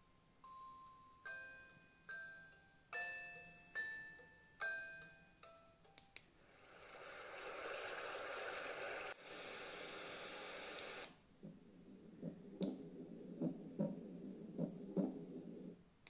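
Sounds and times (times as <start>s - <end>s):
soothing hiss noise from speaker: 0.0s - 16.0s
clicks: 6.0s - 6.3s, 10.0s - 11.6s, 12.2s - 14.0s
rhythmic heartbeat sound: 11.4s - 15.8s.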